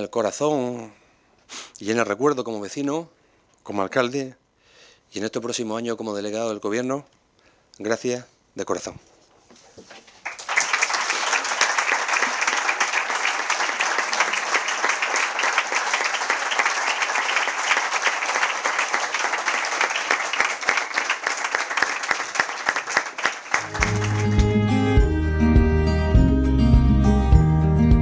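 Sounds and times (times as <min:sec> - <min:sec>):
people applauding: 0:10.2 - 0:25.0.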